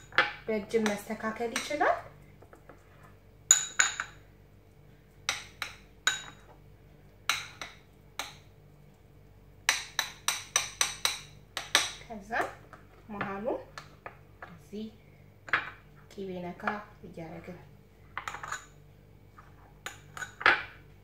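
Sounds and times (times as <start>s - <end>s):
metal spoon clinking against bowl: 18.2s - 18.8s, 19.8s - 20.5s.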